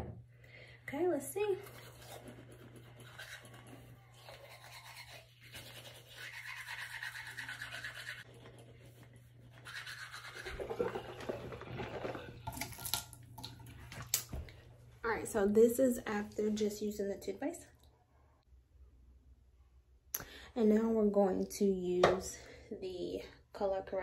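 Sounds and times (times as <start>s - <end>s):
toothbrush scrubbing teeth: 1.6s - 14.1s.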